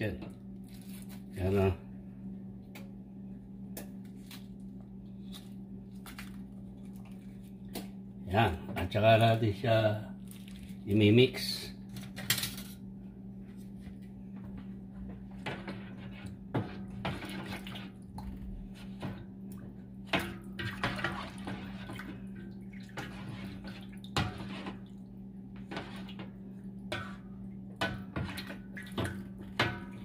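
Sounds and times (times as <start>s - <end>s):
steady low hum: 0.0s - 30.0s
spoon knocking and scraping pan: 14.5s - 17.9s, 22.9s - 24.8s, 25.6s - 30.0s
water sloshing and splashing: 15.4s - 30.0s.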